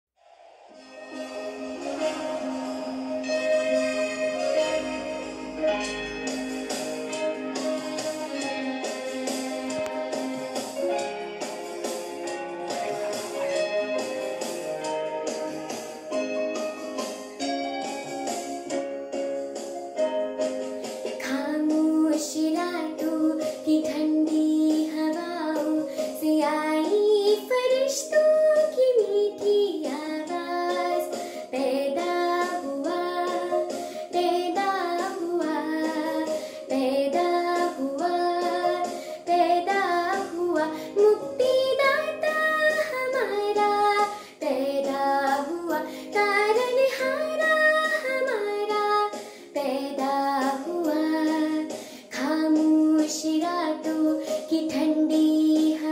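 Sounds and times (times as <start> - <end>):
backing music with held chords: 0.6 - 55.9
girl singing a carol: 21.2 - 55.9.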